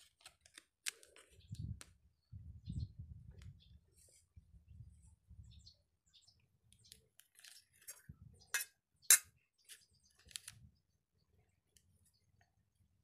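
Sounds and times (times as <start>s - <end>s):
foil sachet crinkling: 0.0s - 1.3s.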